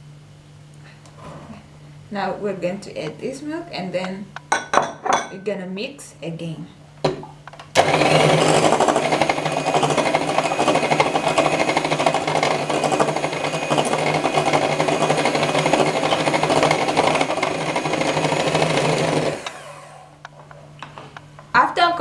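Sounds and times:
electric hand mixer whisking: 0:07.8 - 0:20.2.

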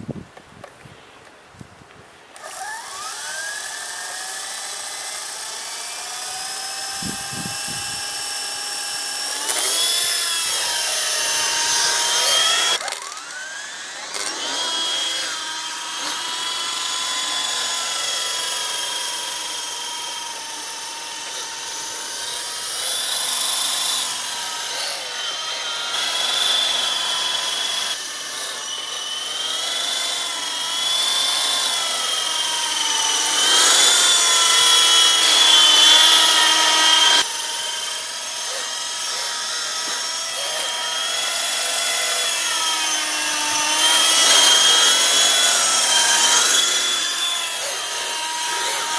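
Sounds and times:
rc helicopter rotor whine: 0:02.3 - 0:48.9.

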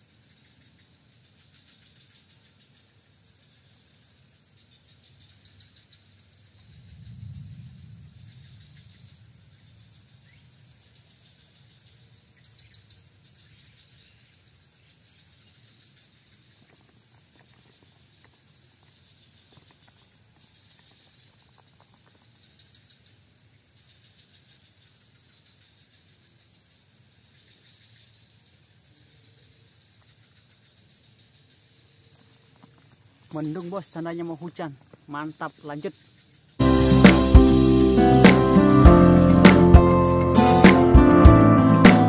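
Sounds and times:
insects trilling: 0:00.0 - 0:40.2
rapid pulsed chirping: 0:04.9 - 0:11.8, 0:36.6 - 0:42.0
soft low rumble: 0:06.6 - 0:09.8.

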